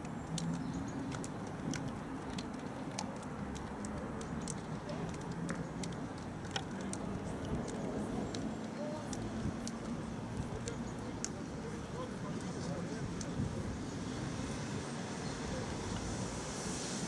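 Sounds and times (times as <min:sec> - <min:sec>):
light ticks and clicks: 0:00.0 - 0:13.4
faint voices: 0:03.4 - 0:16.3.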